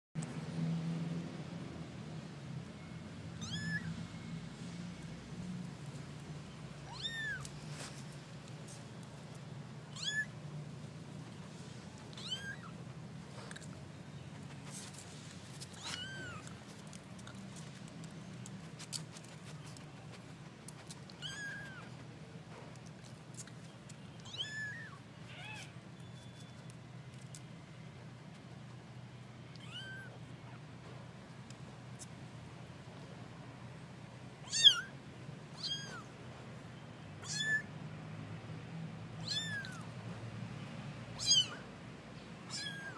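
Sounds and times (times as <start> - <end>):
kitten mewing: 3.4 - 3.9, 6.8 - 7.5, 9.9 - 10.4, 12.1 - 12.8, 15.7 - 16.6, 21.1 - 21.9, 24.2 - 25.7, 29.6 - 30.6, 34.4 - 34.9, 35.6 - 36.1, 37.2 - 37.7, 39.2 - 39.9, 41.2 - 41.7, 42.5 - 42.9.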